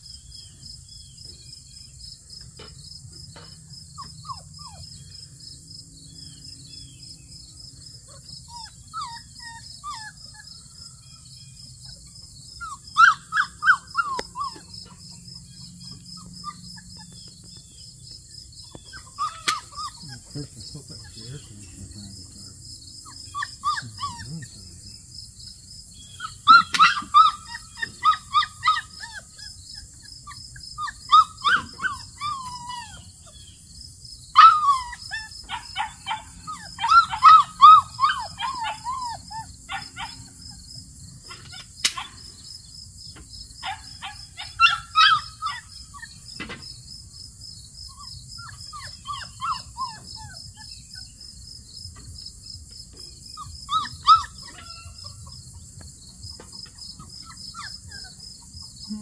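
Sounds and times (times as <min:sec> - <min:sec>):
high insect trill: 0:00.0 - 0:59.0
puppy whining: 0:03.9 - 0:05.1, 0:08.1 - 0:10.6, 0:11.8 - 0:17.4, 0:18.6 - 0:24.8, 0:26.1 - 0:33.4, 0:34.4 - 0:40.6, 0:43.6 - 0:46.2, 0:47.9 - 0:50.8, 0:53.4 - 0:55.6, 0:56.3 - 0:59.0.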